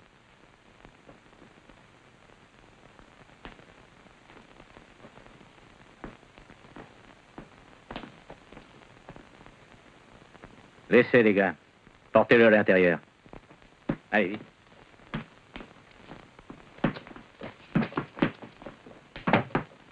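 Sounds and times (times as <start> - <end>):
low steady hiss: 0.0 - 19.9.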